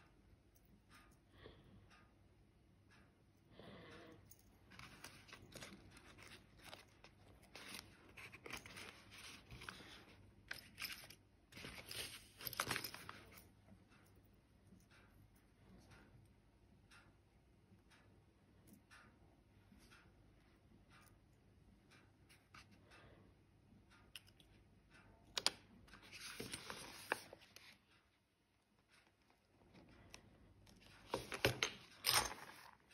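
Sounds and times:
metal lures clicking and scraping: 4.3 - 13.5, 29.8 - 32.9.

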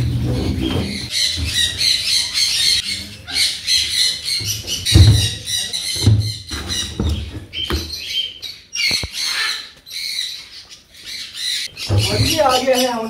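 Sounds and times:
parrots chattering and screeching: 0.0 - 13.0.

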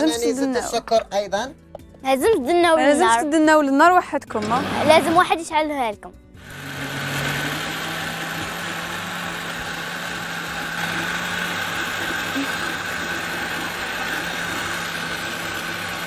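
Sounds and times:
appliance motor whirring: 4.3 - 5.2, 6.4 - 16.0.

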